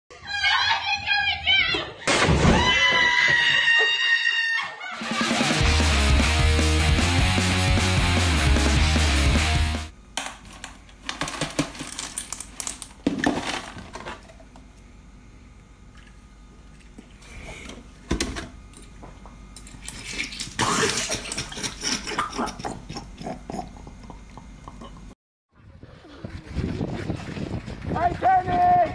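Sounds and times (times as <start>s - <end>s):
rock music sting: 5.0s - 9.9s.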